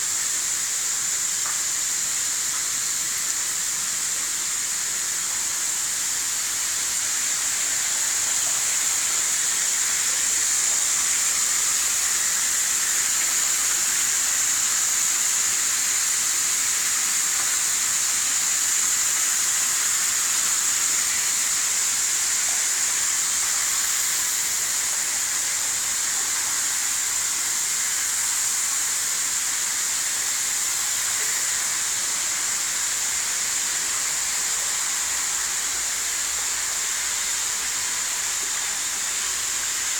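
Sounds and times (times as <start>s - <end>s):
water spraying and splashing: 0.2s - 39.9s.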